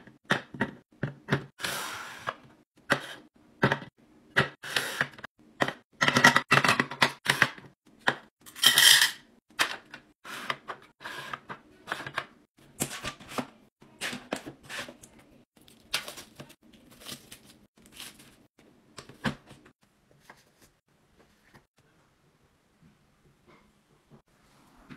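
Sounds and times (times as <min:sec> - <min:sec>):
rustling of plastic and paper: 0:15.6 - 0:18.5.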